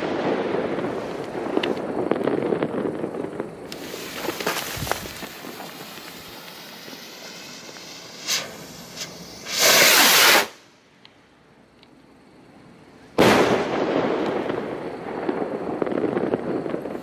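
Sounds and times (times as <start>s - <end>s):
firework rocket whoosh: 0.0s - 10.8s
firework burst bang: 13.2s - 17.0s.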